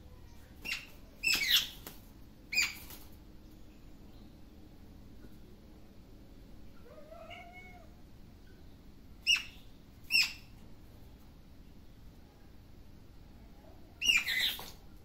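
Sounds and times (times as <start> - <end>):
cat meowing: 6.8 - 8.0
bird chirping: 8.4 - 10.5, 14.0 - 14.7.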